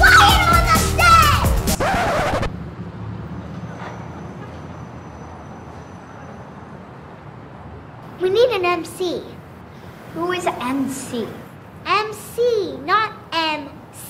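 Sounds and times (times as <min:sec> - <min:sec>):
music: 0:00.0 - 0:02.5
distant road traffic hiss: 0:01.9 - 0:14.0.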